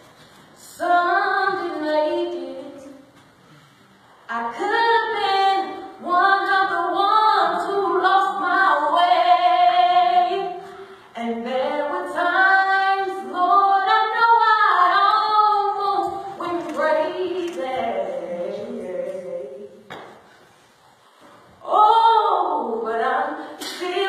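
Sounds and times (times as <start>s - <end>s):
woman singing gospel: 0.6s - 3.0s, 4.3s - 10.6s, 11.2s - 19.8s, 21.6s - 24.0s.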